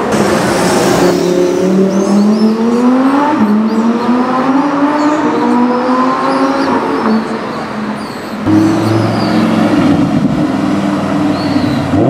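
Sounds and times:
sports car engine accelerating: 8.4 - 12.0.

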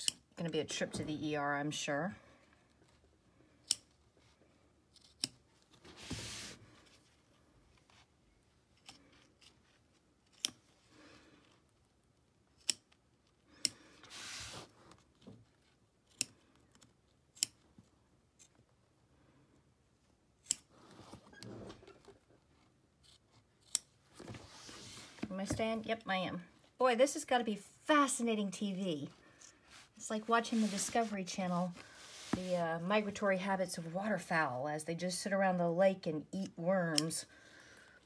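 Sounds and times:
scissors snipping vinyl: 4.9 - 5.5, 10.2 - 10.7, 12.5 - 13.0, 16.0 - 17.6, 20.4 - 20.7, 23.0 - 24.0
vinyl rustling: 24.0 - 26.0, 28.8 - 34.1.

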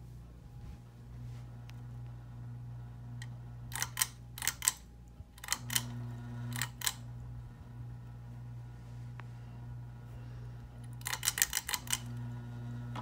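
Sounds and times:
fan motor hum: 0.0 - 13.0
pull-chain switch clicking: 3.7 - 4.8, 11.0 - 12.1.

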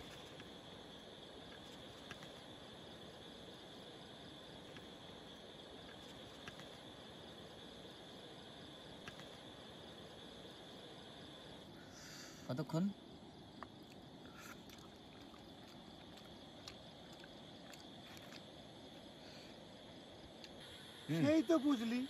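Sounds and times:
night insects chirring: 0.0 - 22.0
faint clicks: 9.0 - 9.4.

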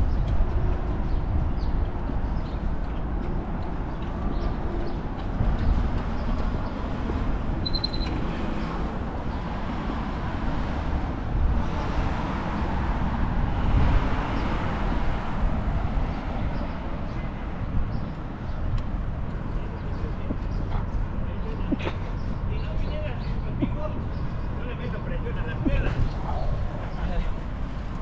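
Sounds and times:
traffic noise: 0.0 - 28.0
short high chirp: 7.6 - 8.2.

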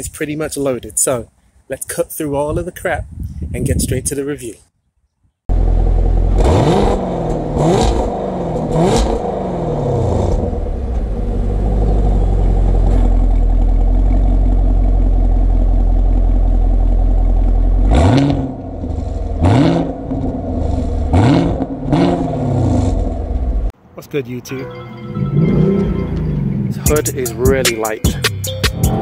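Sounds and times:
car engine revving: 5.5 - 23.7, 25.3 - 27.6
car engine idling: 5.5 - 23.8.

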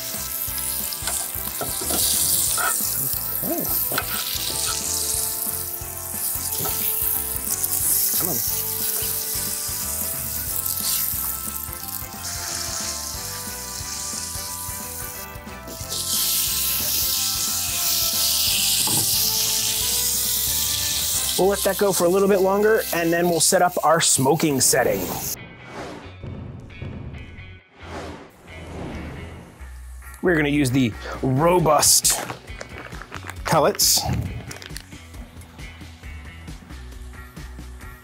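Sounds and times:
steak sizzling on grill: 0.0 - 25.4
tongs clicking: 3.6 - 4.9.

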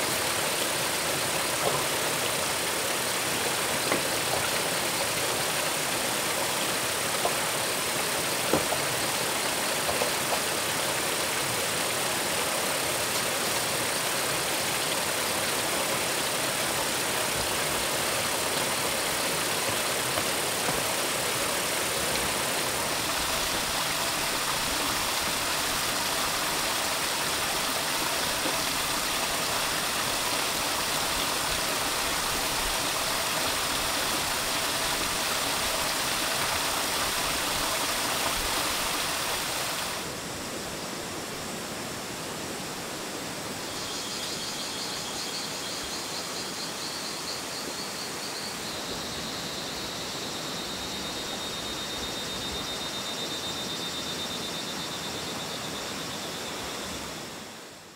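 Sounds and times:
rushing outdoor noise: 0.0 - 57.9.

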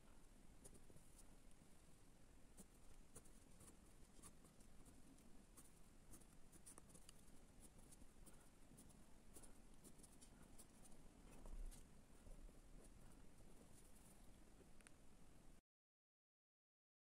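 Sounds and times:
pen scratching and tapping on paper: 0.6 - 1.3, 2.6 - 14.8.

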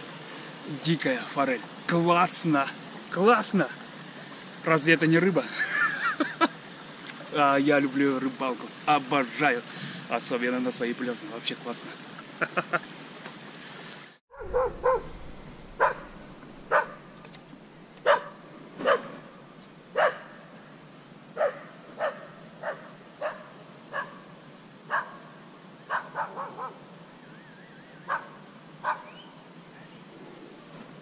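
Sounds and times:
dog barking: 14.3 - 15.2, 15.8 - 17.1, 18.0 - 19.2, 19.9 - 20.3, 21.4 - 24.2, 24.9 - 25.2, 25.9 - 26.8, 28.1 - 29.2.

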